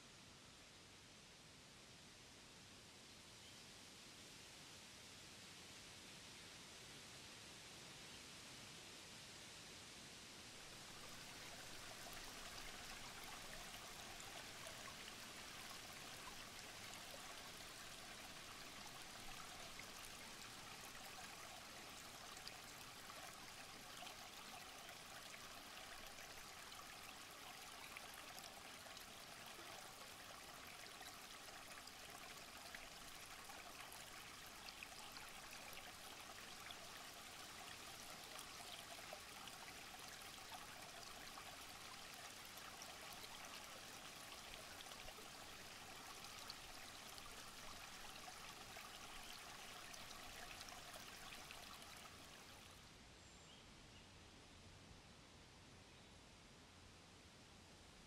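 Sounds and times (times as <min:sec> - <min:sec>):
stream rushing over stones: 0:10.6 - 0:52.7.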